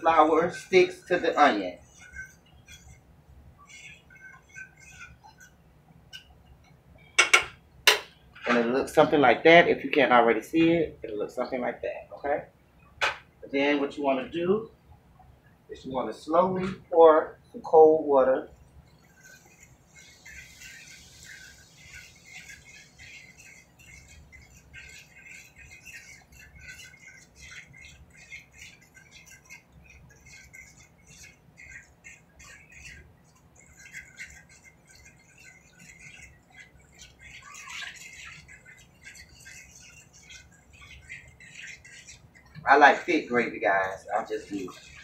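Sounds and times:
onions crackling and sizzling: 19.0s - 24.1s.

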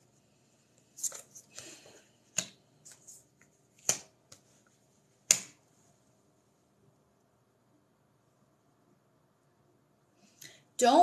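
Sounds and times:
cards slapping on tabletop: 2.3s - 4.6s, 5.2s - 5.6s.

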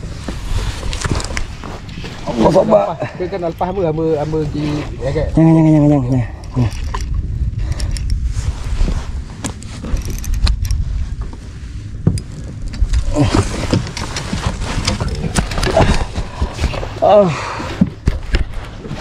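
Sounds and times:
wind rumbling on microphone: 0.0s - 19.0s
sharp knocks and clicks from hull: 12.0s - 17.0s, 17.6s - 19.0s.

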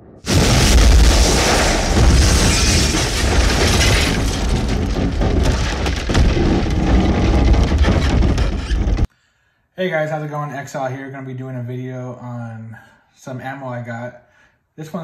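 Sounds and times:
explosion sound effect: 0.0s - 9.1s.

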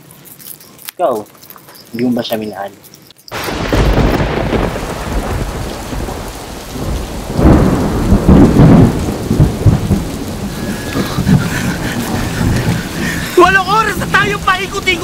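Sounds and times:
heavy rain falling: 3.3s - 15.0s
thunder rumbling: 3.4s - 15.0s.

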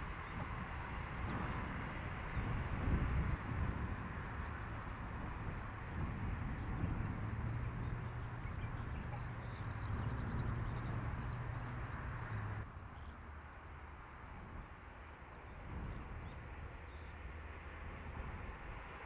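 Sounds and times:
distant train rumble: 0.0s - 19.0s
bird chirps: 6.9s - 13.2s.

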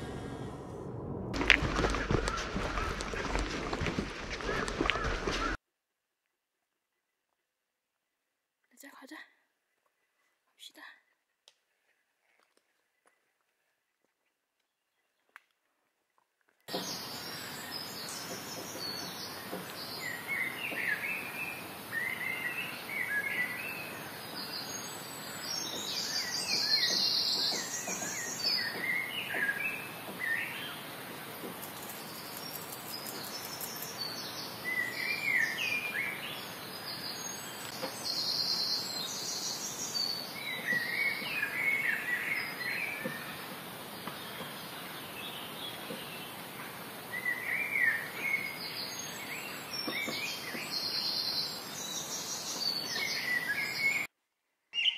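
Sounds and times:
songbirds chirping: 1.4s - 5.6s, 8.7s - 54.1s
steady background hiss: 16.7s - 54.0s.

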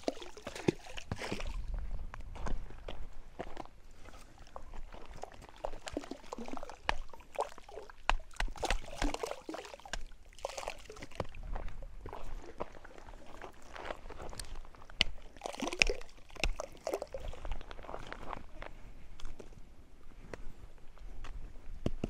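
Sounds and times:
fish splashing at water surface: 5.2s - 11.3s, 15.2s - 17.4s.

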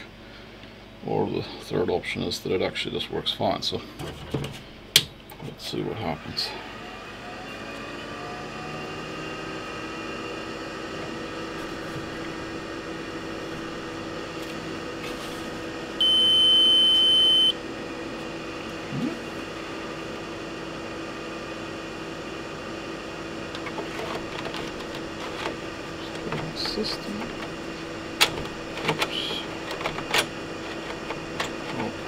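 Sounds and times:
fan humming: 10.3s - 32.0s
high electronic beep: 16.0s - 17.6s.

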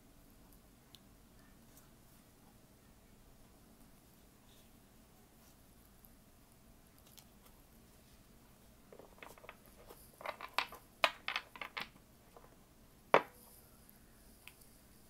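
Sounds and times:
cards clicking and tapping: 9.0s - 12.5s.

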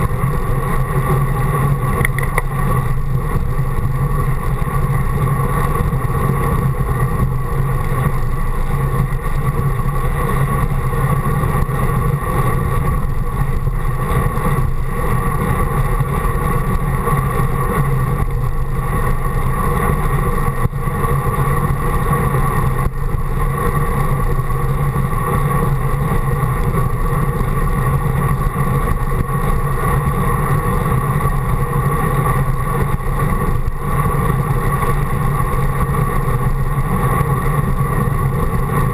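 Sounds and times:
bicycle tyres on asphalt: 0.0s - 38.9s
low vibration drone: 0.0s - 38.9s
rushing wind: 0.0s - 38.9s.

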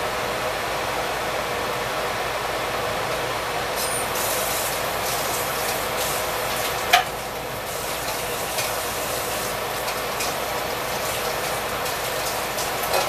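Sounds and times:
oil sizzling and crackling: 3.8s - 13.0s.

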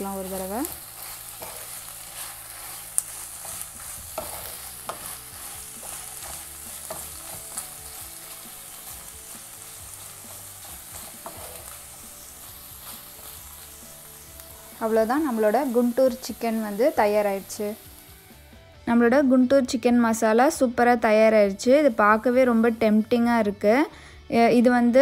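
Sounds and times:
hot pan sizzling: 0.0s - 18.6s, 20.9s - 23.3s
wooden spatula scraping pan: 0.3s - 9.1s
spatula knocking pan: 3.4s - 8.5s.

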